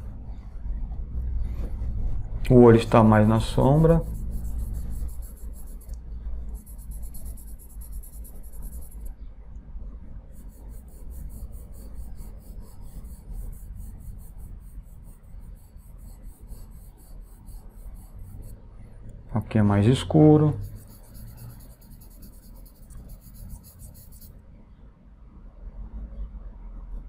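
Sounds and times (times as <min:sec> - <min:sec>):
pencil scratching on paper: 0:02.9 - 0:09.1, 0:10.4 - 0:18.6, 0:20.4 - 0:24.3.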